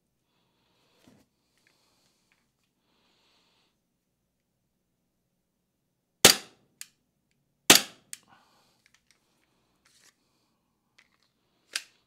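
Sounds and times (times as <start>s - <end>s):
airsoft pistol shots: 6.2s - 6.6s, 7.7s - 8.0s.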